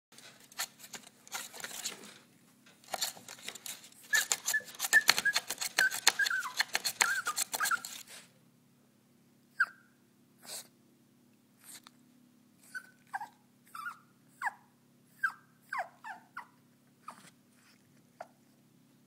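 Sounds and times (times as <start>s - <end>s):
puppy whining: 3.0s - 8.2s, 9.5s - 10.7s, 12.6s - 18.6s.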